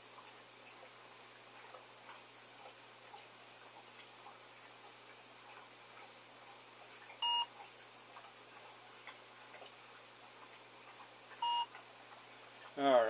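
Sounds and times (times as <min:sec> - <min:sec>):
faint ticks and clicks: 0:00.0 - 0:12.8
short scanner beeps: 0:07.2 - 0:07.5, 0:11.4 - 0:11.7.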